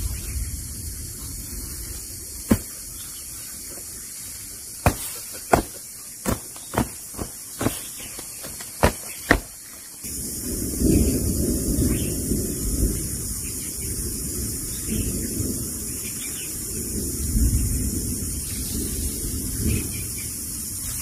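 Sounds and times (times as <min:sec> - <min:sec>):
steady background hiss: 0:00.0 - 0:21.0
sharp knocks: 0:02.5 - 0:02.8, 0:04.8 - 0:09.7.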